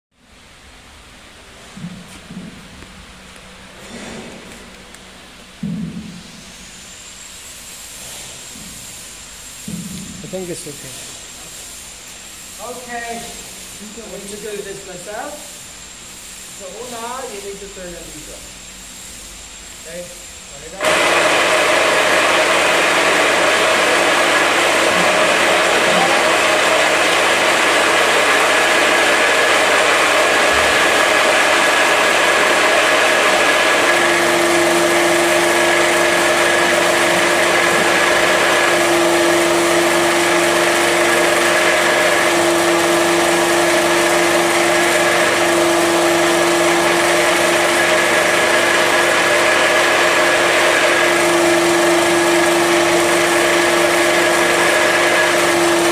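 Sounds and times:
pellet mill motor running: 0:19.8 - 0:55.9
feed pouring into hopper: 0:20.8 - 0:55.9.

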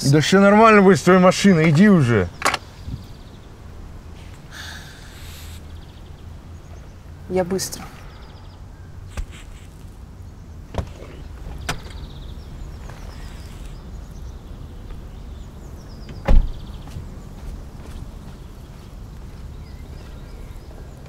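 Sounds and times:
car door clicks: 0:16.0 - 0:16.6
car door slammed shut: 0:16.1 - 0:16.6.

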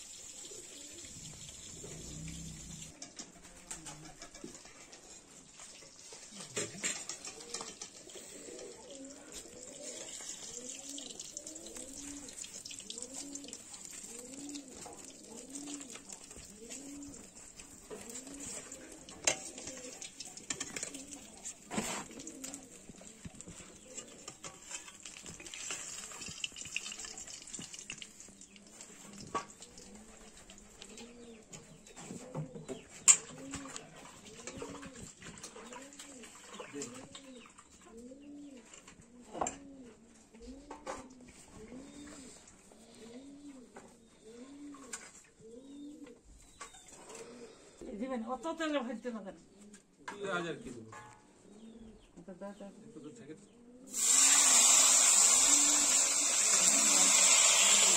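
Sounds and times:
doves cooing: 0:00.1 - 0:47.9, 0:51.4 - 0:57.9.

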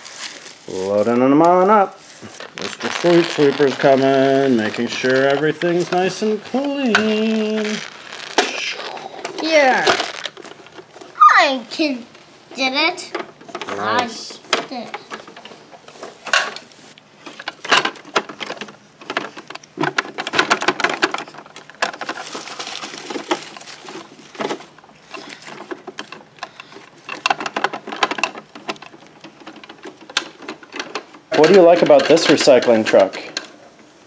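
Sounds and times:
shredded paper rustling: 0:00.0 - 0:10.8, 0:20.5 - 0:26.0
hard plastic clicking and knocking: 0:13.1 - 0:13.8, 0:14.4 - 0:22.3, 0:23.1 - 0:33.6.

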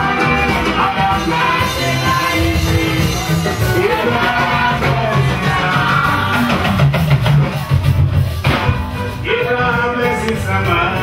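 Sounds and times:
voices singing praise music: 0:00.0 - 0:07.0
guitar: 0:00.0 - 0:11.0
sustained bass line: 0:00.0 - 0:11.0.

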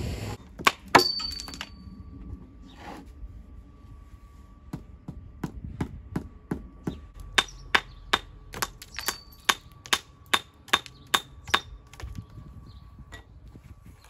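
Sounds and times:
hammer striking stone: 0:07.4 - 0:11.7.

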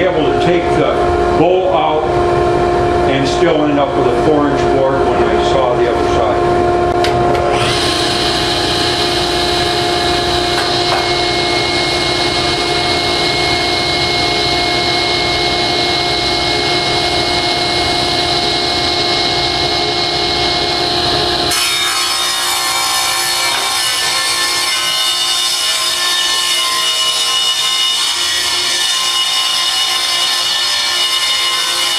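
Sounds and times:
dust collector humming: 0:00.0 - 0:31.9
table saw running: 0:07.0 - 0:31.9
saw ripping a board: 0:21.5 - 0:31.9.

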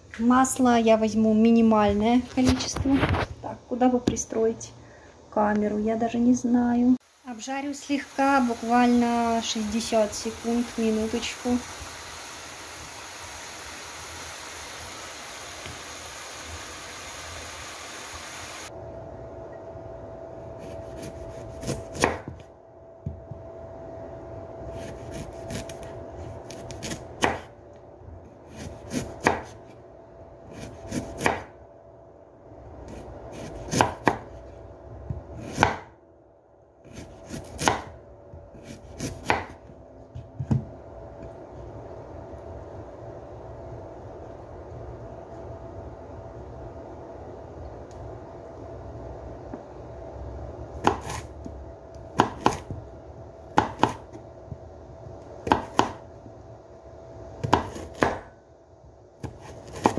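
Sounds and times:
mushrooms sizzling in frying pan: 0:07.0 - 0:18.7
knife chopping on wooden board: 0:20.8 - 0:22.4, 0:26.5 - 0:27.5, 0:28.5 - 0:29.6, 0:30.6 - 0:31.5, 0:32.9 - 0:34.4, 0:35.4 - 0:35.9, 0:36.9 - 0:37.9, 0:38.6 - 0:39.6, 0:50.8 - 0:51.2, 0:52.2 - 0:52.8, 0:53.6 - 0:54.1, 0:55.4 - 0:56.0, 0:57.4 - 0:58.3, 0:59.2 - 0:59.9.

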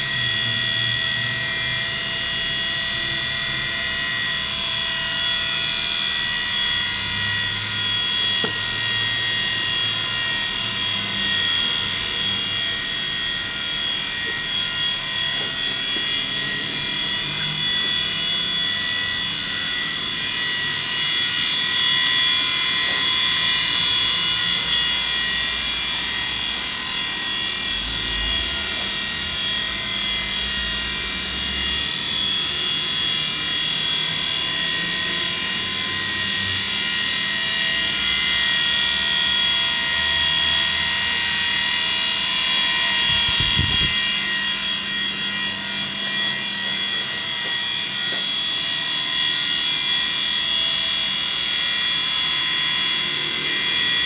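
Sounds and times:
rc helicopter motor whine: 0:00.0 - 0:54.0.

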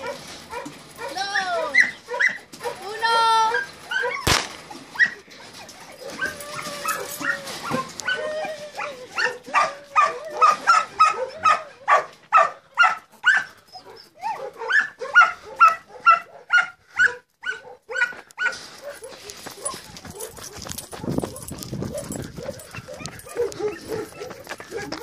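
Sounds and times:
puppies yipping and barking: 0:00.0 - 0:25.0
pistol shot: 0:04.2 - 0:04.8.

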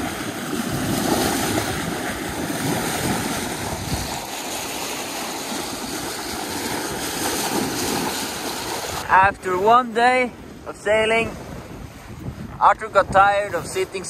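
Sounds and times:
bow wave splashing against hull: 0:00.0 - 0:10.7.

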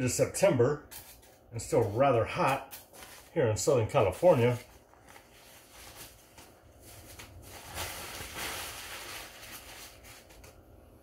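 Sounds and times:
tissue paper rustling and crinkling: 0:02.9 - 0:03.3, 0:03.9 - 0:10.6.

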